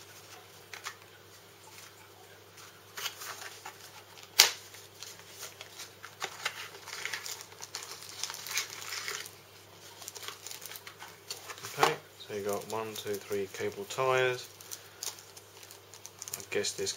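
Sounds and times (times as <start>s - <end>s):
plastic packaging crinkling: 2.6s - 16.9s.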